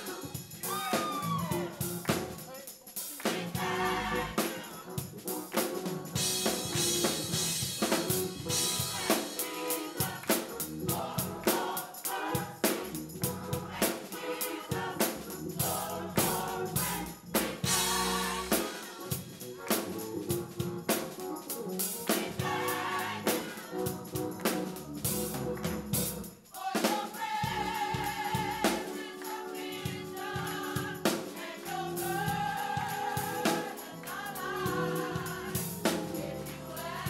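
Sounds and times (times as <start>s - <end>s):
choir singing: 0.0s - 5.0s, 8.4s - 19.4s, 22.0s - 24.8s, 26.3s - 37.0s
drum kit beat: 0.0s - 37.0s.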